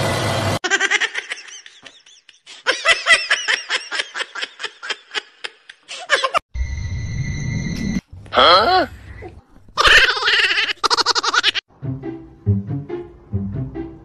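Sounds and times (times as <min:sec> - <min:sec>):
person laughing hard: 0:00.6 - 0:06.4, 0:09.8 - 0:11.6.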